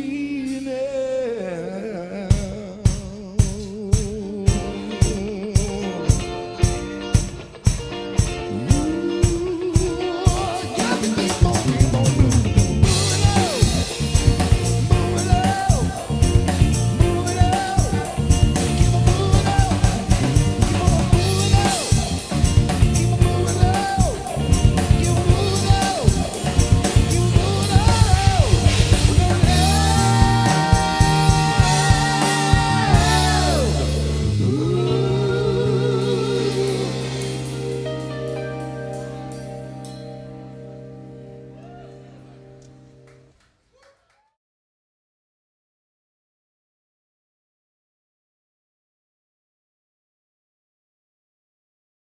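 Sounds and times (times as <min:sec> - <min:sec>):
drum kit beat: 0:02.3 - 0:38.4
live rock band playing: 0:02.3 - 0:43.1
bending guitar notes: 0:05.6 - 0:43.3.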